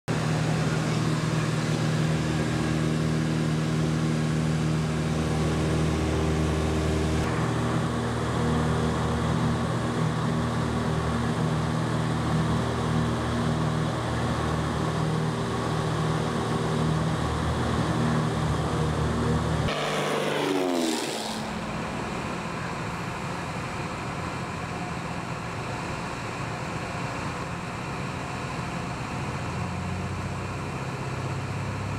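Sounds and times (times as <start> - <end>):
propeller aircraft engine droning: 0.1 - 31.9
falling pitch sweep: 19.5 - 22.3.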